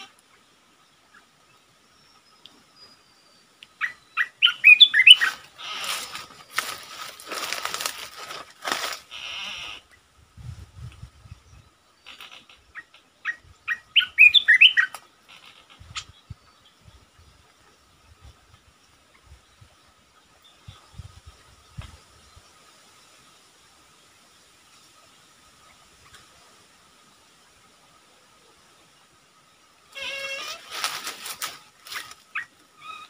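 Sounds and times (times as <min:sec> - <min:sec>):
bird whistling song: 0:03.8 - 0:05.4, 0:13.2 - 0:15.0
bird wings flapping and rustling: 0:05.4 - 0:09.0, 0:30.5 - 0:32.3.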